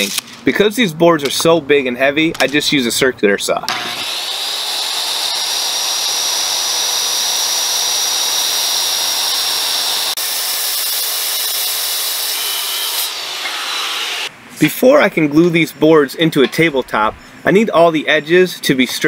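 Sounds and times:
circular saw cutting wood: 3.7s - 14.3s.

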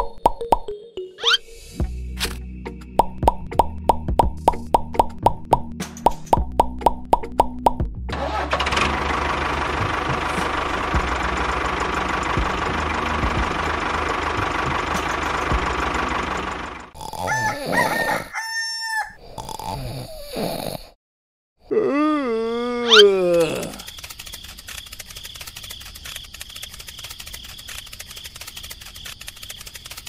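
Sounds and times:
tractor engine chugging: 8.1s - 17.0s
rooster crowing: 17.2s - 19.2s.

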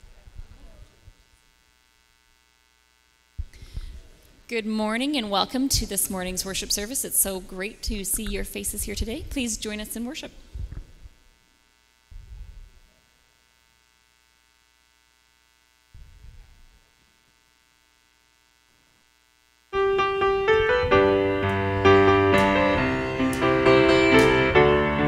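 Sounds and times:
soft low thumps: 10.5s - 11.2s
piano playing: 19.8s - 25.0s.

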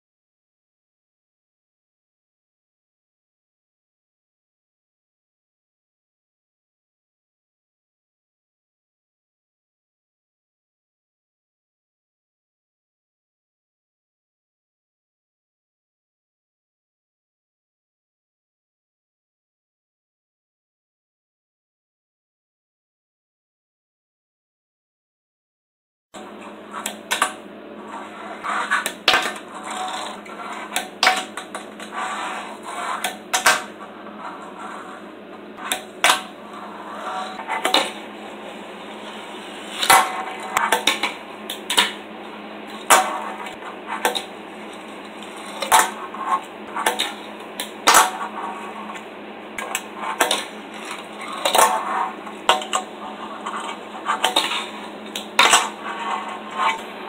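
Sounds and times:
steady low hum: 26.2s - 57.0s
small wheels rolling on table: 26.7s - 35.0s, 35.6s - 42.0s, 42.7s - 49.0s, 49.6s - 56.9s.

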